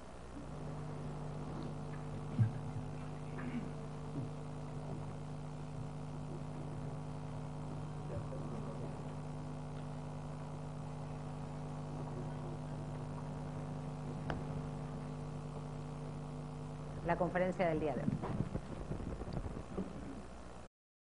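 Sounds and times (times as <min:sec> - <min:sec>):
electrical mains hum: 0:00.0 - 0:20.7.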